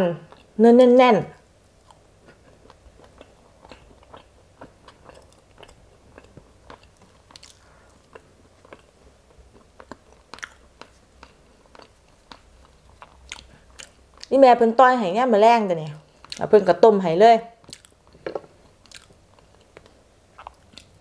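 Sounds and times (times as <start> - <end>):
chewing mouth clicks and smacks: 9.6 - 14.3, 17.6 - 21.0.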